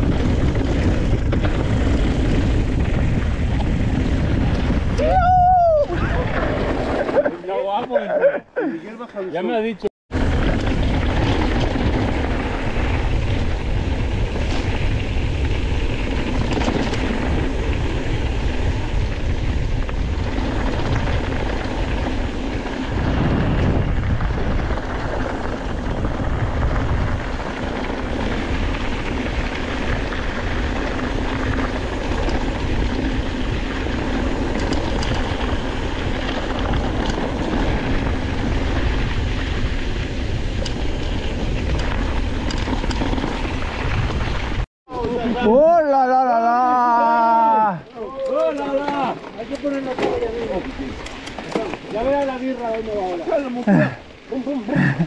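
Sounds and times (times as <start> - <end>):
wind on microphone: 0.0 - 7.3, 10.1 - 45.6.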